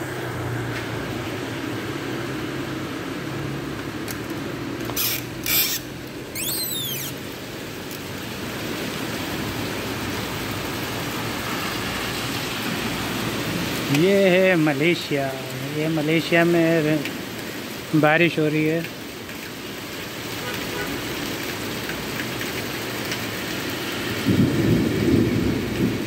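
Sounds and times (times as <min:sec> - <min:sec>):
heavy rain on roof tiles: 0:00.0 - 0:26.0
traffic hum: 0:00.0 - 0:26.0
squeaky gliding chirps: 0:05.0 - 0:07.2.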